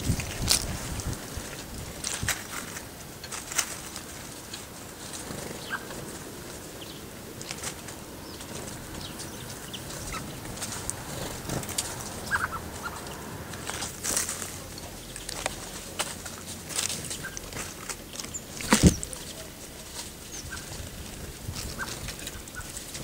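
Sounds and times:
bird wingbeats: 0.0s - 23.0s
bird chirps: 5.4s - 6.0s, 11.6s - 13.3s, 17.0s - 20.8s.

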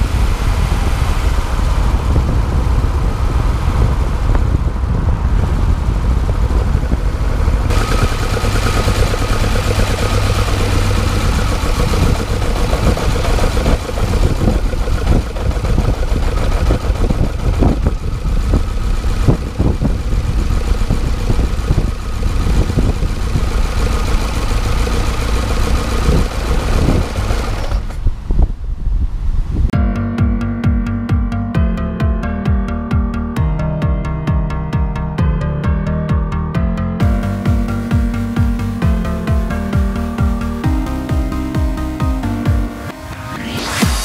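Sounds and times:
car engine revving under load: 0.0s - 28.8s
engine intake noise: 5.3s - 28.4s
sharp engine cracks: 7.6s - 28.1s.

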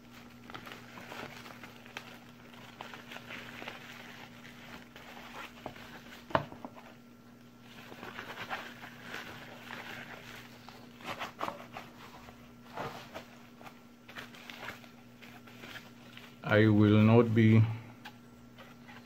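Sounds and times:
plastic bags and bubble wrap rustling: 0.0s - 17.6s.

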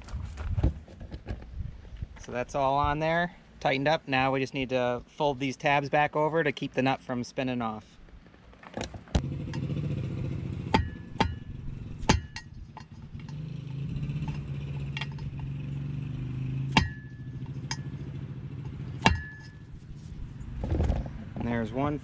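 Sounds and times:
low motor drone: 9.2s - 22.0s.

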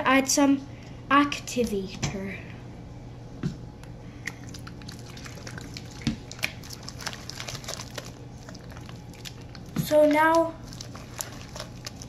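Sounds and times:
hand squishing slime: 4.2s - 12.0s.

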